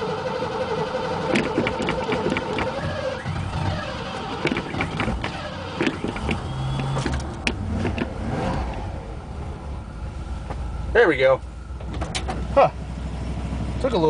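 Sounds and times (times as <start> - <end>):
engine cranking: 0.0 - 8.9, 11.7 - 12.8
engine popping: 1.1 - 8.9.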